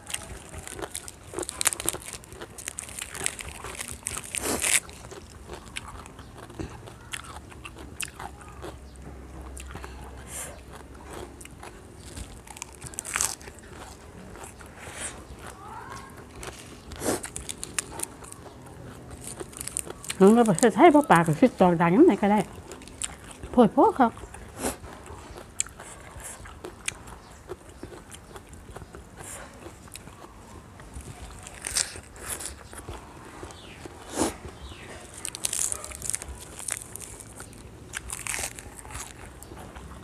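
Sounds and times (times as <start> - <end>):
person chewing crunchy vegetables: 0.0 - 40.0.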